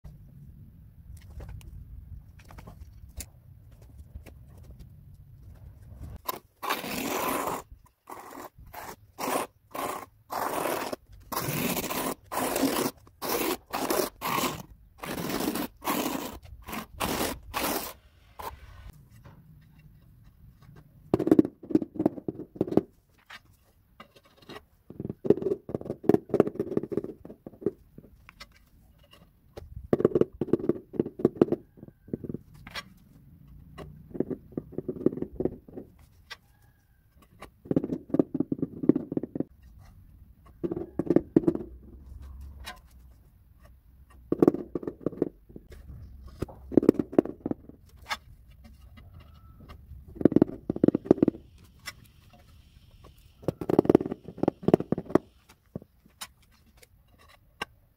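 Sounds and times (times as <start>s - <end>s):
rubber mallet tapping tiles: 50.2s - 51.4s, 53.4s - 55.3s.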